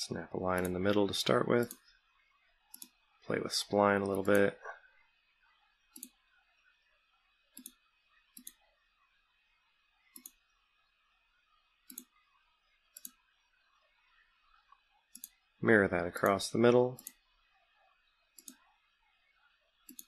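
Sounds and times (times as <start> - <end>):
computer mouse button clicking: 7.6 - 7.8, 8.4 - 8.6, 10.2 - 10.4, 11.9 - 12.1.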